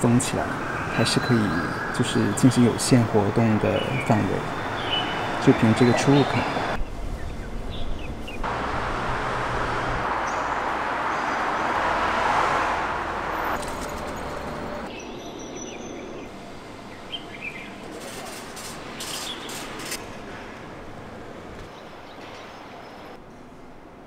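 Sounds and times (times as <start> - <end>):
birds chirping: 0.0 - 12.4, 13.3 - 19.8
vehicle passing: 7.6 - 15.0.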